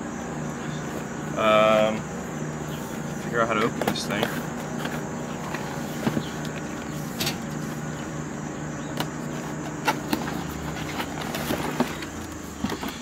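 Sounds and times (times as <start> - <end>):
low mechanical hum: 0.0 - 13.0
cardboard scraping and tapping: 3.6 - 7.7, 9.0 - 13.0.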